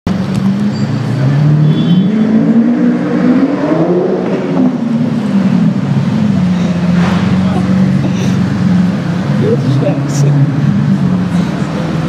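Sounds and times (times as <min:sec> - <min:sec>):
traffic: 0:00.0 - 0:12.0
supercar engine revving: 0:00.1 - 0:12.0.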